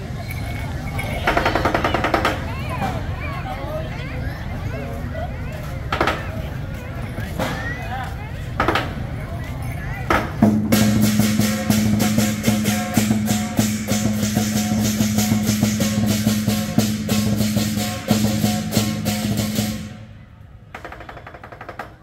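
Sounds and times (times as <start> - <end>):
big drum and cymbals: 10.0 - 20.2.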